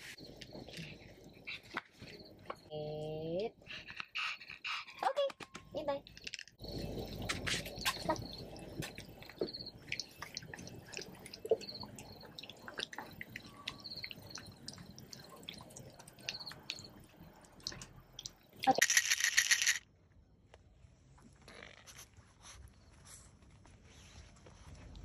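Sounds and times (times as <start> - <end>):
pill bottles rattling: 18.7 - 19.8.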